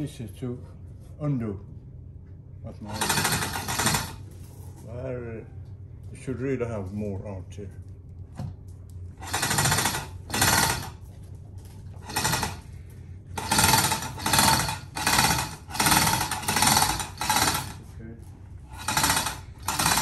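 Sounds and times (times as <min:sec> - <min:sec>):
chain hoist chains rattling: 0:02.8 - 0:04.2, 0:09.2 - 0:11.0, 0:12.0 - 0:12.7, 0:13.4 - 0:17.9, 0:18.7 - 0:20.0.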